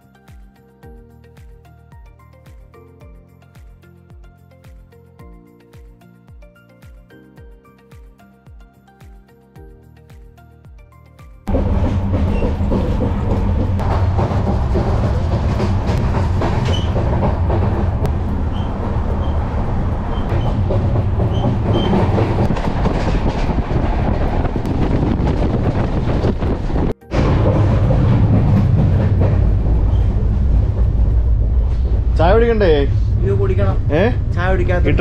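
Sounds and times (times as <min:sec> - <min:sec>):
train wheels rumbling on rails: 0:11.5 - 0:35.0.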